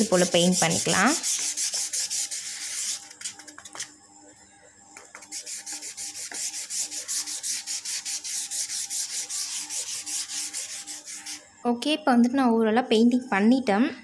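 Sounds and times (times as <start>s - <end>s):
sponge brush scratching on cardboard: 0.0s - 3.5s, 5.2s - 11.4s.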